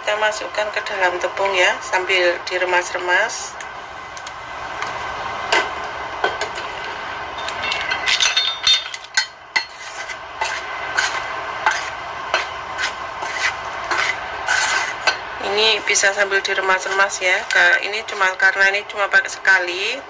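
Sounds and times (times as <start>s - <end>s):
hand working chicken in flour: 9.7s - 17.8s.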